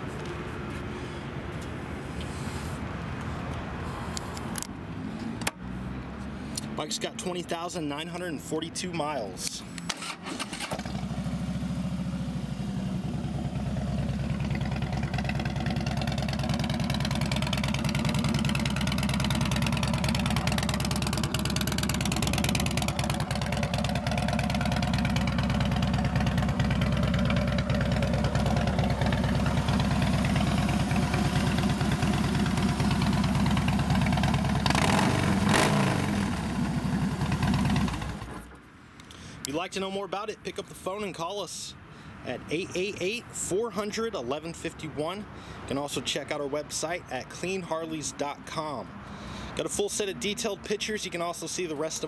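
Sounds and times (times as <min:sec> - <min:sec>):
motorcycle engine idling: 0:10.8 - 0:38.3.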